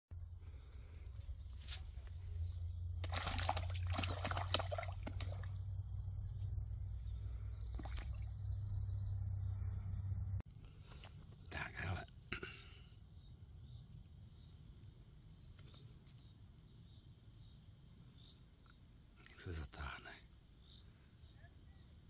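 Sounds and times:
low steady rumble: 0:00.1 - 0:12.0
fish splashing at water surface: 0:03.0 - 0:05.6.

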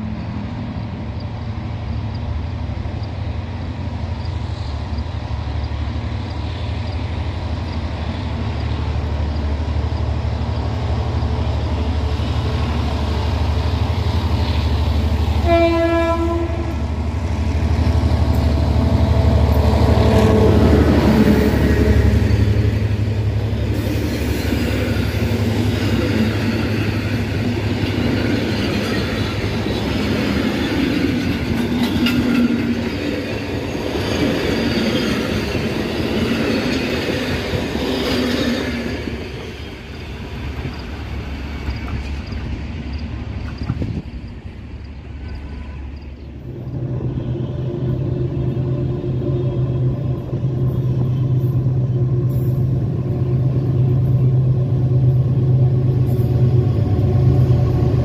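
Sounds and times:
diesel locomotive engine drone: 0:00.0 - 0:58.0
train wheels rumbling on rails: 0:00.0 - 0:58.0
train horn blast: 0:15.3 - 0:17.0, 0:19.0 - 0:22.2, 0:45.2 - 0:46.0.

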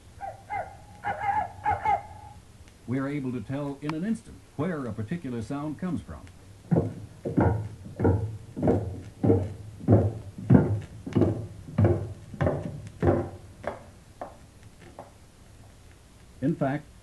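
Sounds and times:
evenly paced thumps: 0:06.5 - 0:16.0.

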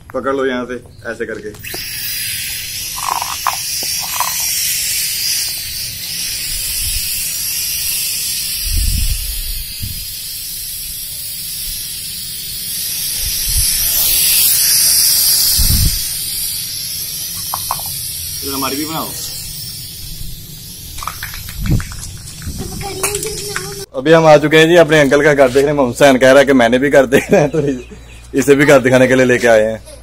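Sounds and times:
drone propellers whirring: 0:01.6 - 0:21.7.

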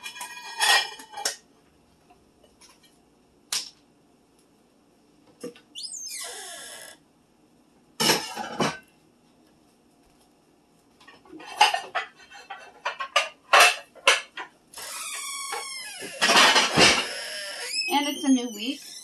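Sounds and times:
dishes and silverware clinking: 0:00.0 - 0:01.4, 0:08.0 - 0:08.9, 0:11.0 - 0:14.5
pitch-sliding squeal: 0:17.0 - 0:19.0.

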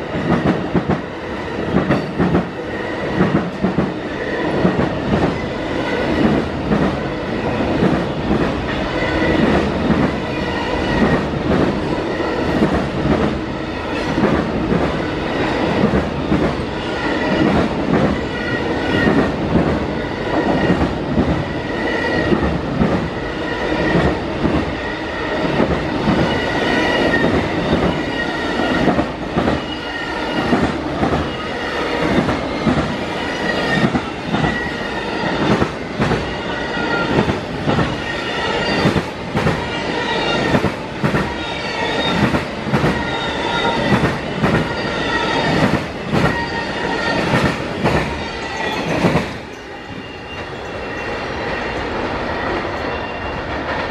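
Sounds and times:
train rumble: 0:00.0 - 0:53.9
high wheel squeal: 0:37.9 - 0:39.0, 0:41.3 - 0:42.3, 0:42.9 - 0:44.0, 0:48.1 - 0:53.5.

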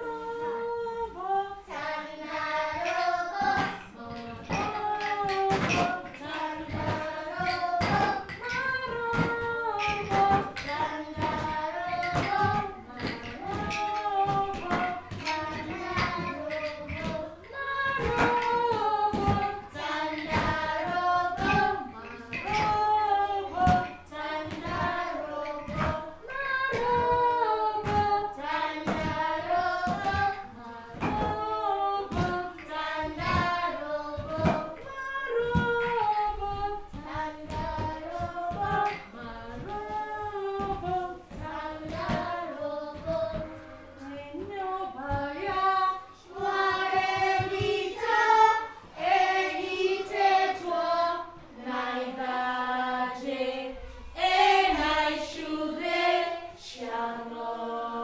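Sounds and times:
children singing: 0:00.0 - 0:58.0
woman singing: 0:00.0 - 0:58.0
wooden sticks tapping on floor: 0:02.0 - 0:45.8.

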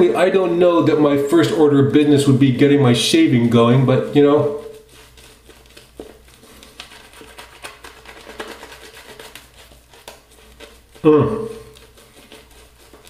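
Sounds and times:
shaving brush wet lathering: 0:00.2 - 0:13.0
small clicks and crackles of lather: 0:04.8 - 0:13.0.

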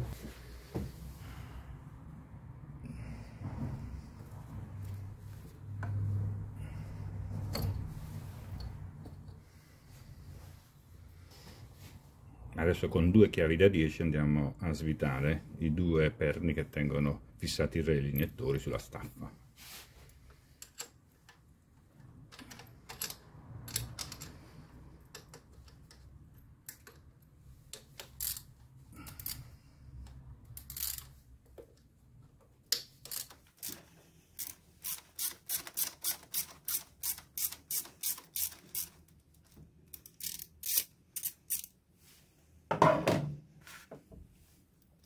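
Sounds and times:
ratchet wrench clicking: 0:27.8 - 0:28.5, 0:29.2 - 0:29.4, 0:30.5 - 0:31.2, 0:32.7 - 0:33.8, 0:34.4 - 0:39.2, 0:39.9 - 0:41.8.

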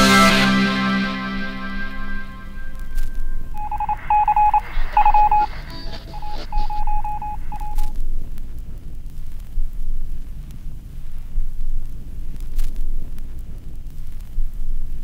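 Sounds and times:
steady low rumble: 0:01.9 - 0:15.0
short electronic beeps: 0:02.6 - 0:07.9
scattered clicks: 0:03.0 - 0:09.6.

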